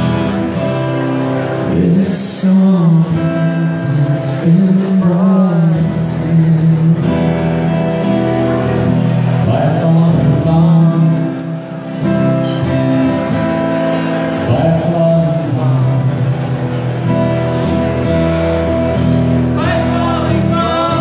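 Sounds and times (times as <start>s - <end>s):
acoustic guitar strumming: 0.0s - 21.0s
man singing: 1.6s - 7.5s, 9.4s - 13.4s, 14.3s - 16.5s, 19.4s - 21.0s.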